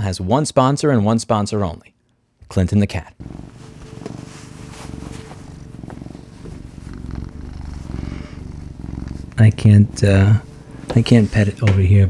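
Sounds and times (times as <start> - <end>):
cat purring: 3.2 - 11.7.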